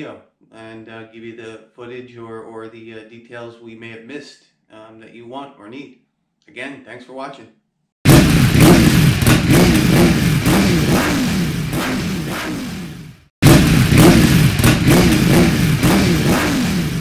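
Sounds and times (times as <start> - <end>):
motorcycle engine revving: 8.0 - 17.0.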